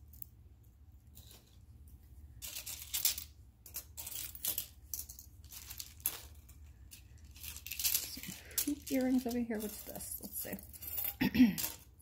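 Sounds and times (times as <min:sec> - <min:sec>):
metal jewelry jingling on marble: 0:06.9 - 0:12.0.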